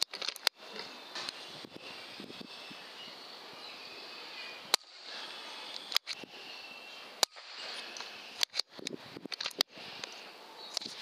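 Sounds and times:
sharp clicks: 0.0s - 0.6s, 4.7s - 4.9s, 5.7s - 6.3s, 7.2s - 11.0s
steady high hiss: 0.4s - 11.0s.

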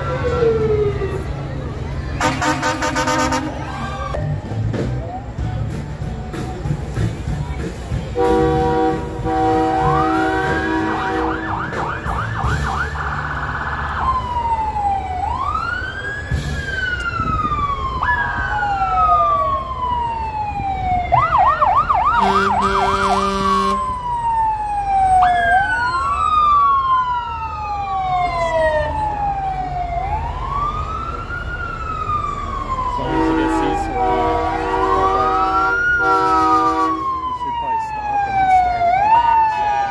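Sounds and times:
horn blast: 2.2s - 3.9s, 8.1s - 12.9s, 22.2s - 23.9s, 33.0s - 37.2s
siren wailing: 9.3s - 39.9s
siren fast yelp: 21.1s - 30.9s.

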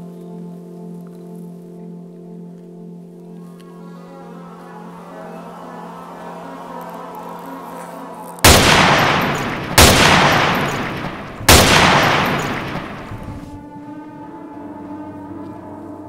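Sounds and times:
soft musical drone: 0.0s - 8.4s, 13.5s - 16.0s
echoing gunshots: 8.4s - 13.6s.

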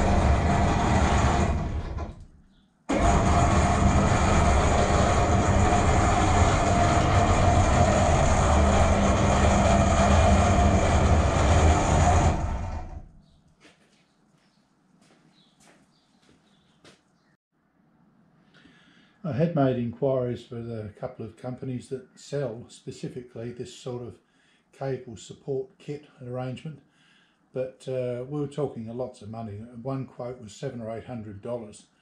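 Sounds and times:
electric hoist motor humming: 0.0s - 2.3s, 2.9s - 13.2s.

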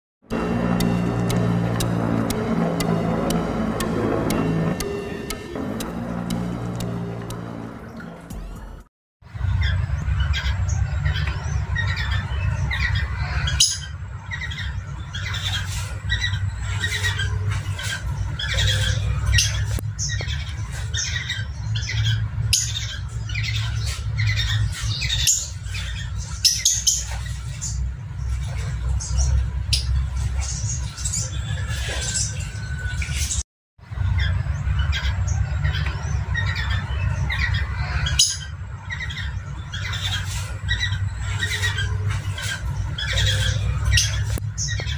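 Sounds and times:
steady low rumble: 0.3s - 31.6s
cockatiels squawking and chirping: 9.5s - 27.8s, 34.2s - 44.9s.

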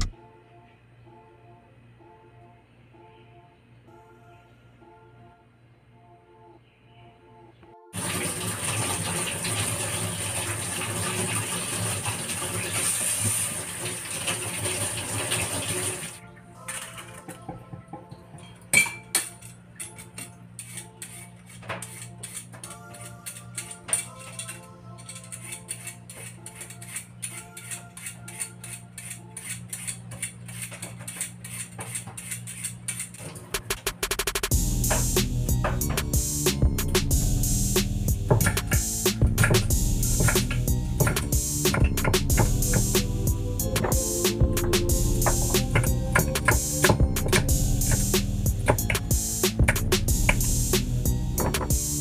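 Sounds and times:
soft background music: 0.0s - 12.4s, 14.1s - 30.4s, 34.5s - 52.0s
faucet running hard: 8.0s - 16.2s
water splashing in sink: 8.0s - 17.2s
vegetable peeler scraping: 19.8s - 34.2s, 36.8s - 52.0s
hands rubbing vegetables: 20.0s - 24.5s
steady low hum: 34.5s - 52.0s.

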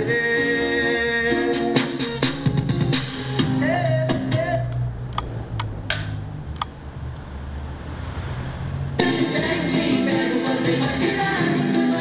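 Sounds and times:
music: 0.0s - 5.2s, 9.0s - 12.0s.

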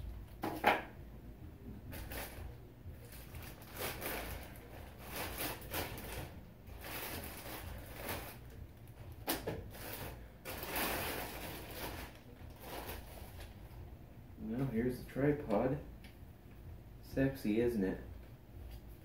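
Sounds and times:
plastic bag crinkling: 1.9s - 13.8s.

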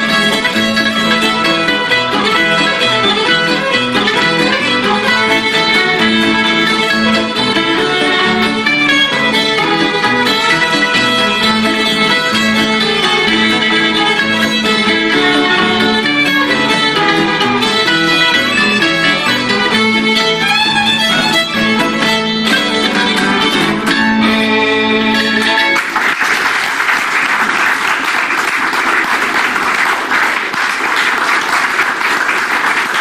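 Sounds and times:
fiddle and acoustic guitar tune: 0.0s - 26.5s
audience applause: 25.7s - 33.0s.

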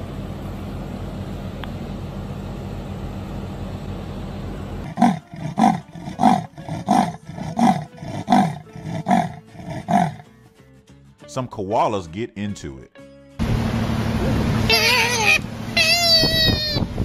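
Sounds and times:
leopard rasping sawing call: 4.8s - 10.3s, 14.7s - 16.8s
low rumbling noise: 13.4s - 14.7s.

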